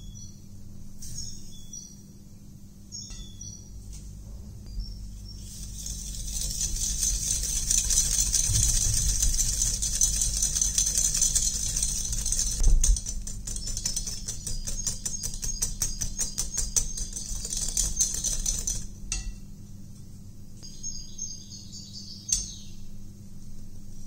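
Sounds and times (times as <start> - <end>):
whisk swishing through mixture: 5.4 - 18.9
whisk wires clicking on glass: 5.4 - 19.4.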